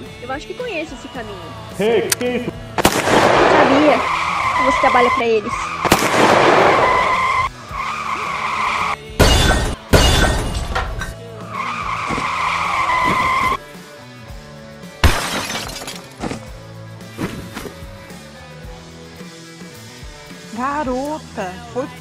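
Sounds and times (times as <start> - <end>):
music: 0.0 - 22.0
tyre screech: 3.8 - 5.9, 6.6 - 9.0, 11.4 - 13.6
heavy car crash: 9.2 - 11.1
glass shattering: 9.2 - 11.2, 15.0 - 16.5.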